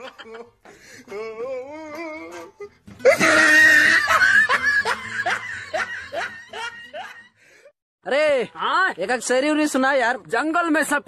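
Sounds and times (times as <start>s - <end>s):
loud laughter: 0.0s - 0.6s, 3.0s - 7.3s.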